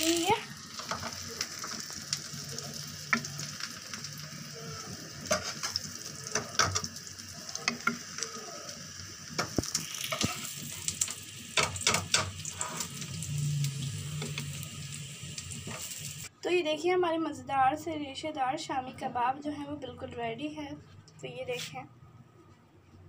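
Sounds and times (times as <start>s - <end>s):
food sizzling in hot oil: 0.0s - 16.3s.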